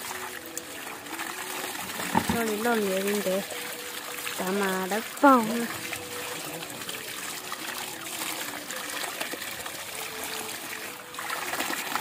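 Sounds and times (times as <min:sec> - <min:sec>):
tap water running into basin: 0:00.0 - 0:12.0.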